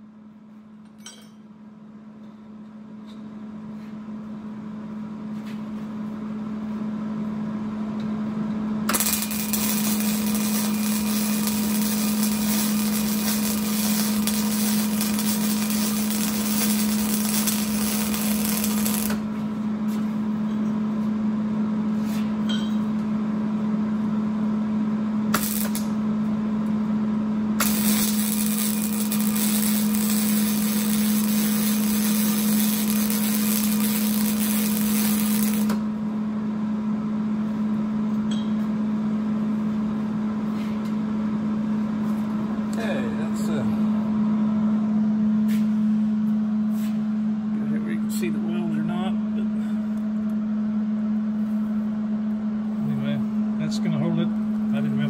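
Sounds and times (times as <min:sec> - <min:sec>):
steady hum: 0:00.0 - 0:55.0
welding arc crackling: 0:08.9 - 0:19.3, 0:25.3 - 0:26.0, 0:27.6 - 0:35.8.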